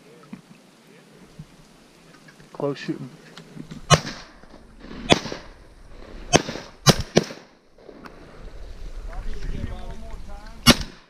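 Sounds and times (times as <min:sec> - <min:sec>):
shotgun shots: 0:03.9 - 0:05.6, 0:06.3 - 0:07.6, 0:10.6 - 0:11.0.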